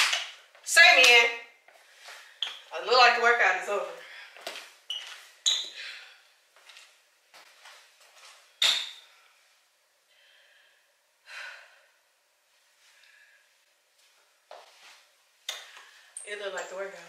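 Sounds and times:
person breathing: 5.7s - 6.4s, 9.0s - 12.0s, 12.8s - 13.6s.

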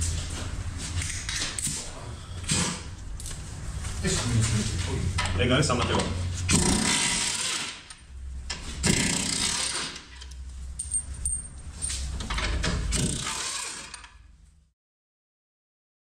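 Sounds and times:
metal tools clinking and rattling: 10.2s - 12.6s
low steady hum: 10.2s - 12.8s.

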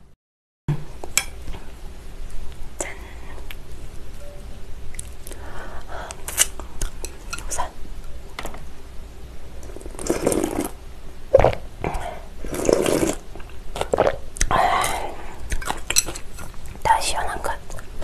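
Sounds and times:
loud slurping of broth: 9.8s - 10.8s, 12.4s - 13.2s.

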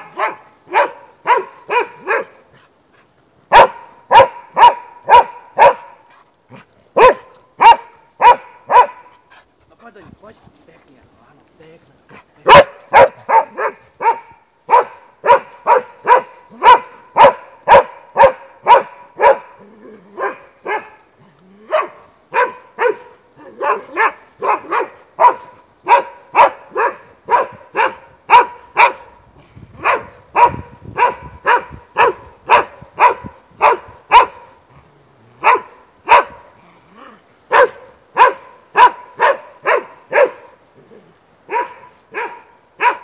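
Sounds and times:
dog barking: 0.0s - 2.4s, 3.5s - 6.0s, 7.0s - 9.1s, 12.4s - 19.6s, 20.2s - 21.0s, 21.7s - 29.2s, 29.8s - 34.5s, 35.4s - 36.5s, 37.5s - 40.6s, 41.5s - 43.0s.

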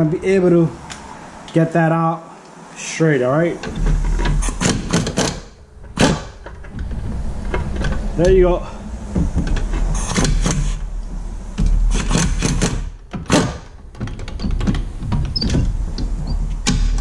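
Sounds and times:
impact wrench hammering: 4.2s - 6.4s, 11.6s - 13.7s.

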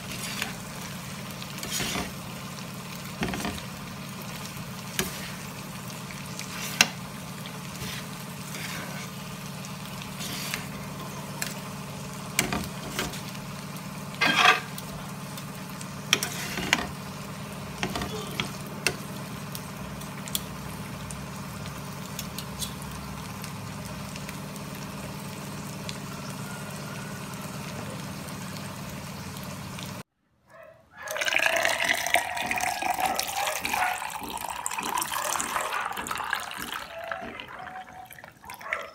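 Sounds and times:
spatula scraping metal pan: 1.6s - 2.2s, 7.8s - 9.2s, 14.2s - 14.8s, 16.1s - 16.9s
juice pouring into mug: 31.1s - 38.9s.

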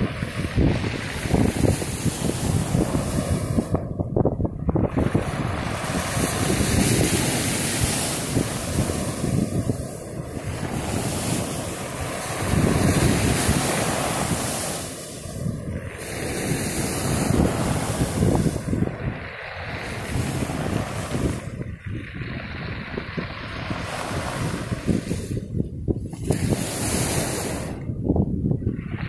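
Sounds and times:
waves breaking on pebble beach: 0.0s - 3.8s, 4.7s - 27.8s
wind rumble on microphone: 0.0s - 29.0s.

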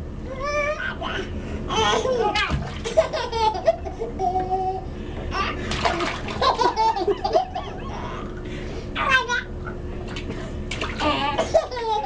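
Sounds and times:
babies babbling and squealing: 0.3s - 2.5s
water sloshing: 5.6s - 6.8s, 10.0s - 12.0s.

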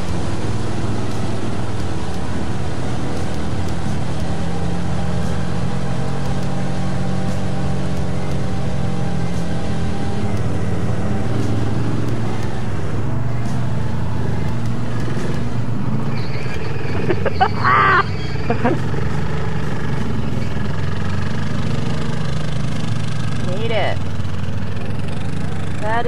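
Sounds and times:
atv engine running: 0.0s - 26.0s.

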